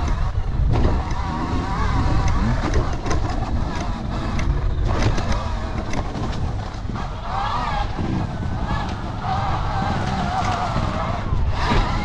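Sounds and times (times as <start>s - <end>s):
bike knocks and rattles: 0.0s - 7.1s, 9.9s - 12.0s
electric motor whining: 0.0s - 12.0s
wind rumble on microphone: 0.0s - 12.0s.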